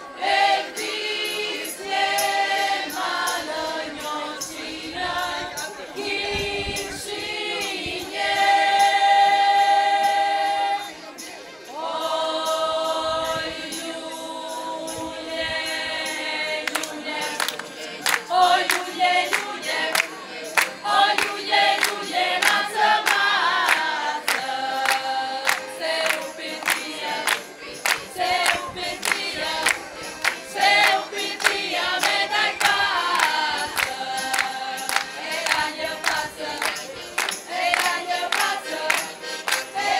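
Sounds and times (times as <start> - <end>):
group singing long notes: 0.0 - 39.9
rhythmic hand-clapping: 16.3 - 39.9.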